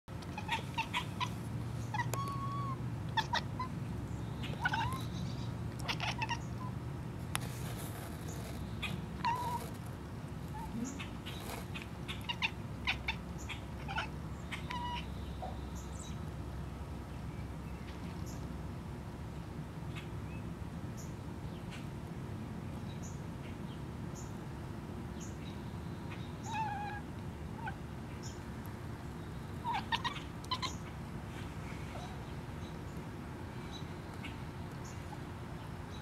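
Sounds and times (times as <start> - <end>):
cat chattering: 0.2 - 3.8, 4.4 - 6.8, 8.8 - 9.8, 10.5 - 15.1, 26.4 - 27.8, 29.6 - 30.9.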